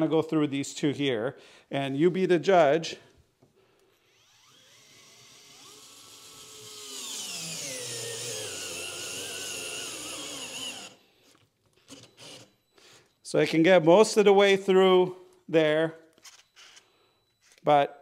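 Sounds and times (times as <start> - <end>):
cordless screwdriver motor whirring: 4.1 - 11.0, 11.9 - 12.6.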